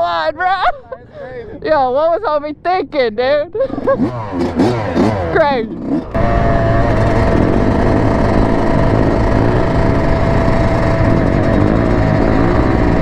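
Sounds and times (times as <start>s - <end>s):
dirt bike engine running: 3.7s - 13.0s
wind rushing over microphone: 6.0s - 13.0s.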